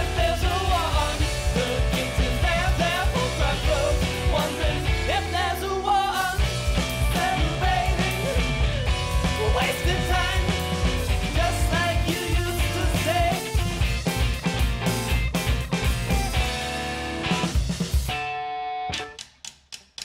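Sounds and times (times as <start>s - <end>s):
man singing lead: 0.0s - 13.8s
rock band playing: 0.0s - 19.2s.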